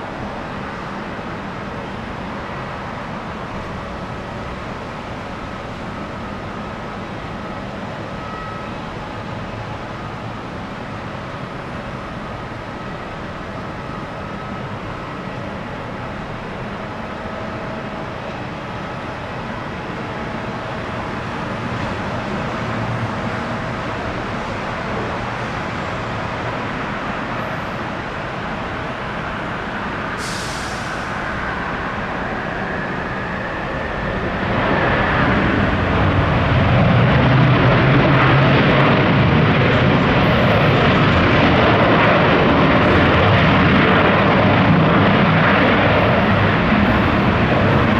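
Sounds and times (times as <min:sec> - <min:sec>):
jet engines rushing and whining: 0:00.0 - 0:47.9
brief high hiss: 0:30.2 - 0:31.3.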